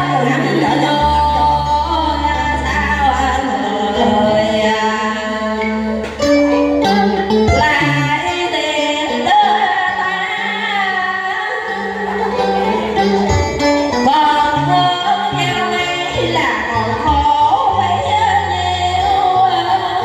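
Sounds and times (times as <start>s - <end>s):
instrumental backing music: 0.0s - 20.0s
woman singing into microphone: 0.0s - 20.0s.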